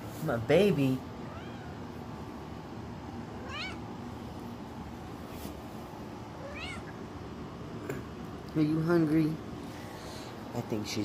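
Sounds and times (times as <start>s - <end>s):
cat meowing: 1.2s - 1.9s, 3.4s - 3.9s, 6.4s - 7.0s.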